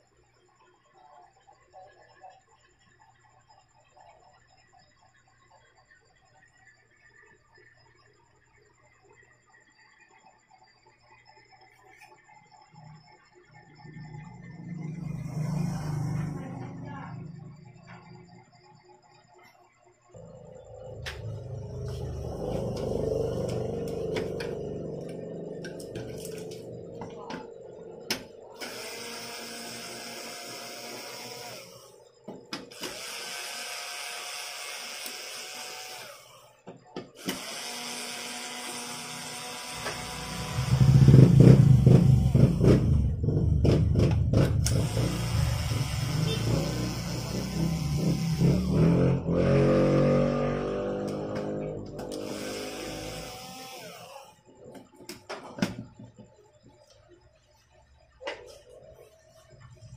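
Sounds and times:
small electric motor whine: 11.0s - 43.2s, 44.6s - 54.8s
electric screwdriver motor whine: 28.6s - 32.0s, 32.7s - 36.5s, 37.2s - 42.7s, 44.6s - 49.0s, 52.0s - 54.4s.

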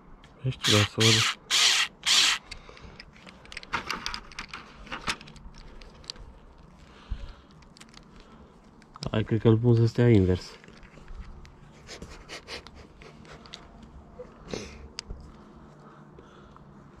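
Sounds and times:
light clicks and rattles: 2.5s - 9.9s.

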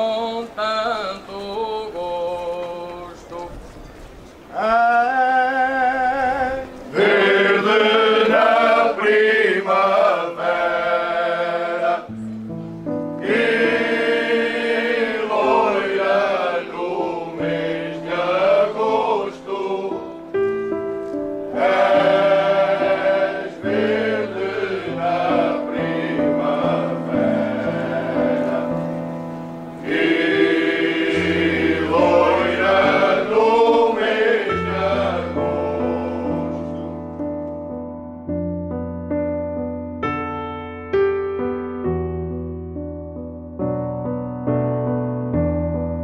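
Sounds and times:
choir singing: 5.7s - 12.3s, 13.2s - 20.5s, 21.4s - 37.1s.

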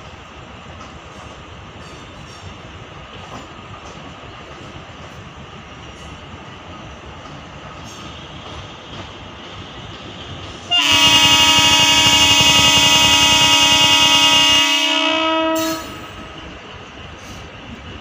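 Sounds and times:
low train rumble: 0.0s - 18.0s
train horn long blast: 10.7s - 16.4s.

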